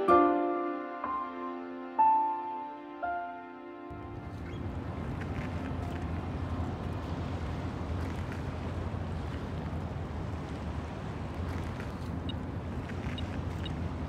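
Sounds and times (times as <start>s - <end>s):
riverside ambience rumble: 3.9s - 14.0s.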